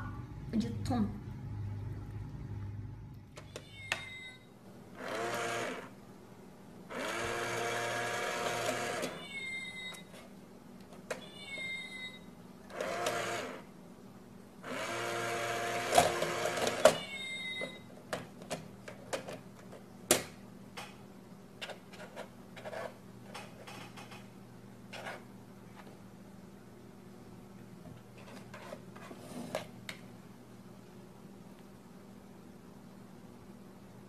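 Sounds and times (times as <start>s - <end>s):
recorded meow: 3.5s - 4.4s, 9.1s - 10.0s, 11.2s - 12.2s, 16.9s - 17.8s
small electric motor whirring: 5.0s - 5.9s, 6.9s - 9.2s.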